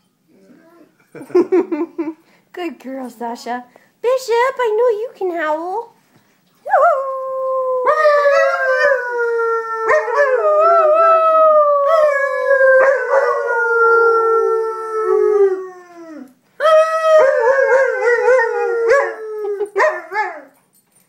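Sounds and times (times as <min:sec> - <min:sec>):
dog howling: 0:06.8 - 0:20.6.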